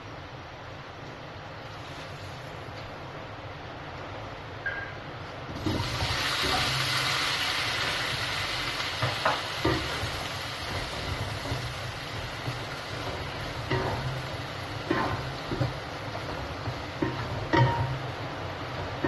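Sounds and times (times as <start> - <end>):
cabbage sizzling in hot oil: 5.5 - 19.0
steady low hum: 7.8 - 19.0
spatula knocking against wok: 9.0 - 19.0.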